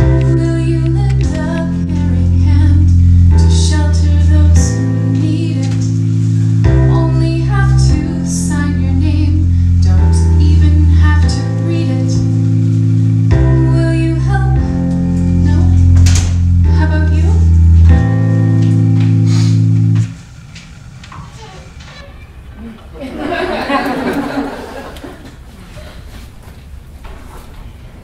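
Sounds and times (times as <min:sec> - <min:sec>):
woman singing: 0:00.0 - 0:06.0, 0:06.7 - 0:12.3, 0:13.4 - 0:16.0, 0:16.7 - 0:17.4
guitar: 0:00.0 - 0:22.0
bass notes: 0:00.0 - 0:23.0.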